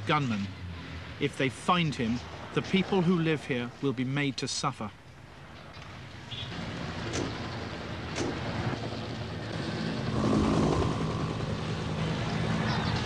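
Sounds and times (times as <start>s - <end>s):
vehicle engine running: 7.4s - 13.0s
sharp cracks: 8.1s - 8.5s.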